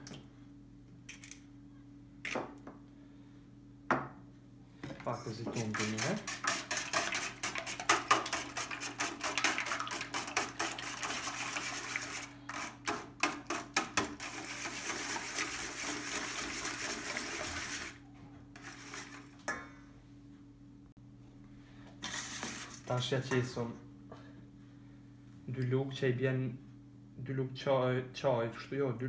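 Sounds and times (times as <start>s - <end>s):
whisk rattling in metal bowl: 5.5s - 18.0s
whisk clinking on bowl: 5.6s - 12.7s.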